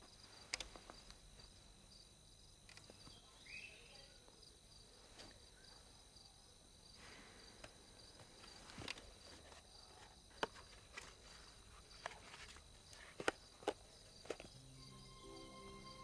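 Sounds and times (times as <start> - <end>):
crickets chirping: 0.0 - 16.0
book being handled: 8.3 - 14.6.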